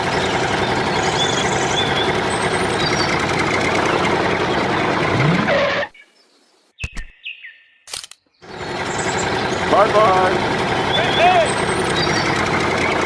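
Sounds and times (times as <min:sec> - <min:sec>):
tractor engine running: 0:00.0 - 0:05.9, 0:08.4 - 0:13.0
sharp clicks: 0:07.9 - 0:08.3.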